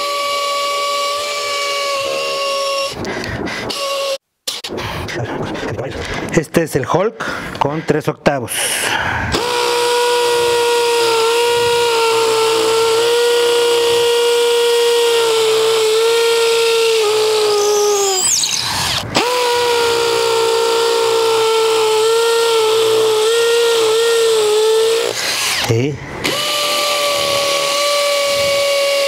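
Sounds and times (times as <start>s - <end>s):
hammer drill drilling into concrete: 0.0s - 4.2s, 9.3s - 29.0s.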